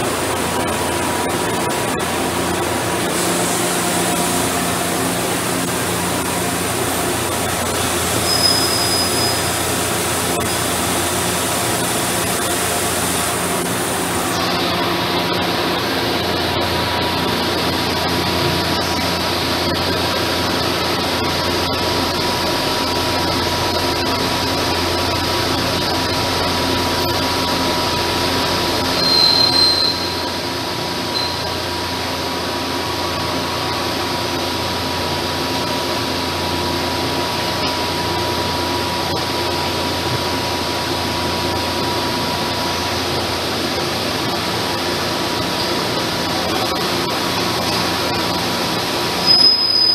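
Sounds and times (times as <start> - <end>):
lathe humming with a whine: 0.0 - 29.1
brief high squeal: 8.2 - 9.6, 29.0 - 30.2, 31.1 - 31.6, 49.2 - 49.9.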